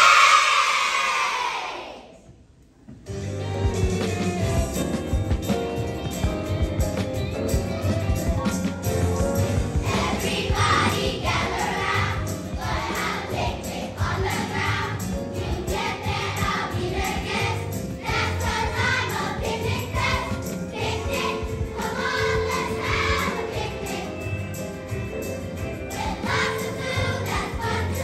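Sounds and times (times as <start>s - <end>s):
musical accompaniment: 2.9s - 28.0s
children's choir singing: 9.7s - 28.0s.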